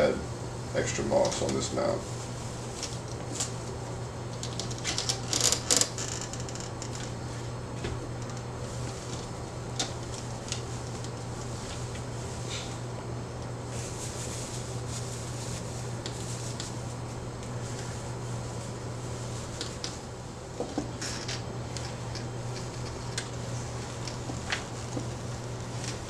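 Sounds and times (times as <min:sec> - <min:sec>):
steady low hum: 0:00.0 - 0:26.0
dry moss rustling and crackling: 0:21.8 - 0:26.0.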